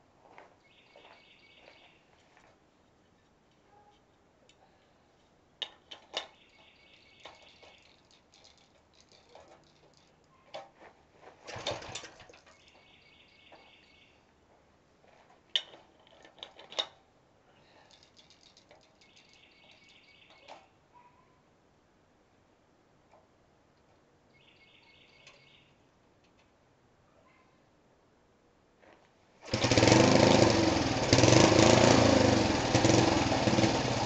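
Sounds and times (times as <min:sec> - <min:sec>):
recoil starter cranking engine: 0:11.5 - 0:12.4, 0:29.5 - 0:34.0
metallic clicks and knocks: 0:15.5 - 0:17.0.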